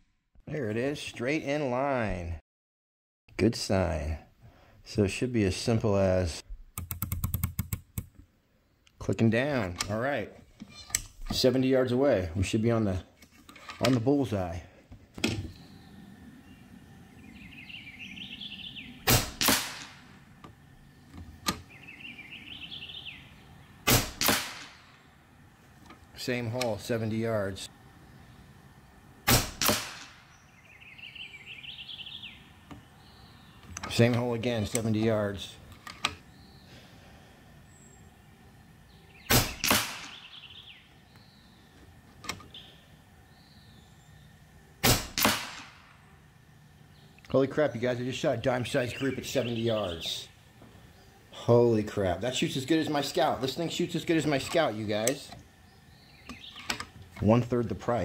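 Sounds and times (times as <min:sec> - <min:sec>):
bird warbling: 0:15.5 - 0:24.2, 0:30.1 - 0:33.6, 0:38.9 - 0:41.7
air rifle shot crack: 0:19.0 - 0:20.2, 0:23.8 - 0:25.0, 0:29.2 - 0:30.4, 0:39.3 - 0:40.4, 0:44.8 - 0:46.0
pellet hitting target: 0:19.1 - 0:20.0, 0:23.9 - 0:24.8, 0:29.3 - 0:30.2, 0:44.8 - 0:45.8.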